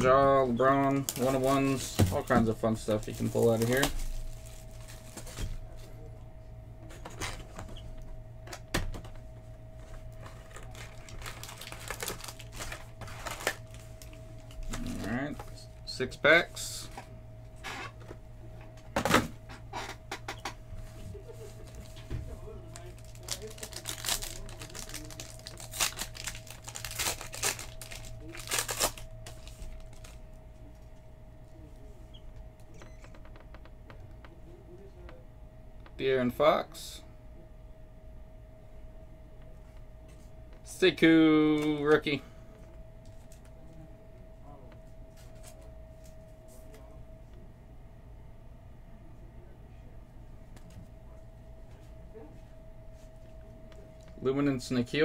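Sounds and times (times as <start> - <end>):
faint steady hum: 0.0 - 55.0
foil card wrappers crinkling and tearing: 0.8 - 5.5, 10.2 - 15.5, 22.6 - 30.2.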